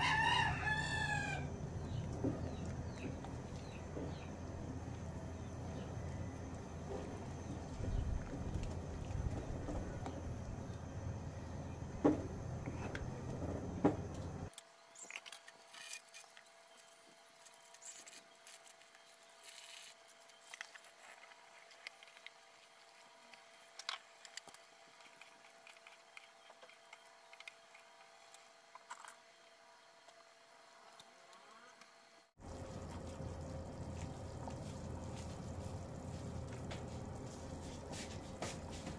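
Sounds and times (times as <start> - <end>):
stew bubbling in a pot: 32.4 - 38.9.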